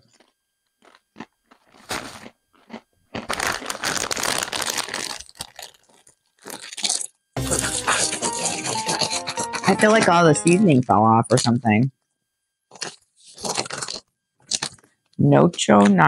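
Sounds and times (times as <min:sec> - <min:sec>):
chips crunching and chewing: 0:00.0 - 0:09.6, 0:12.7 - 0:14.9
snack bag crinkling: 0:00.0 - 0:09.6, 0:12.7 - 0:15.0.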